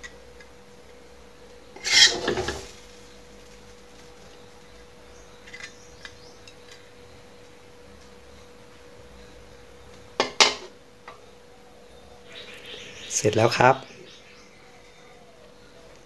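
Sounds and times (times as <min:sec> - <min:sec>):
faint steady hum: 0:00.0 - 0:16.0
metal spatula scraping wok: 0:01.8 - 0:02.8.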